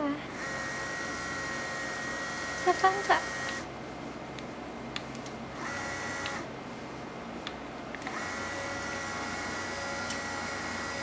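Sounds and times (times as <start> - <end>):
small electric motor whining: 0.3 - 3.7, 5.6 - 6.5, 8.0 - 11.0.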